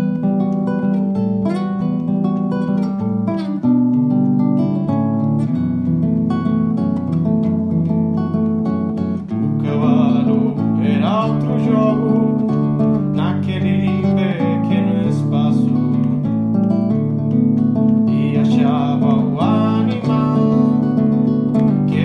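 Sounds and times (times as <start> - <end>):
acoustic guitar strumming: 0.0 - 22.0
man singing: 9.6 - 16.3, 18.0 - 22.0.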